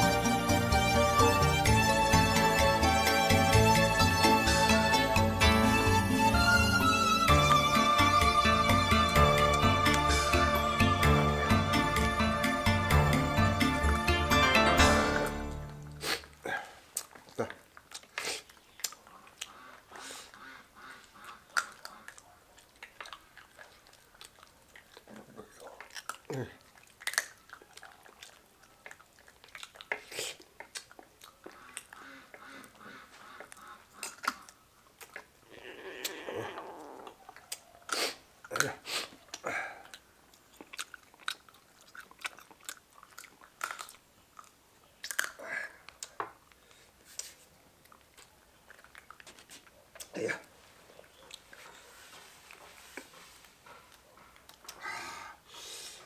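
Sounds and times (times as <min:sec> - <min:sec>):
wet chewing: 0:15.5 - 0:54.9.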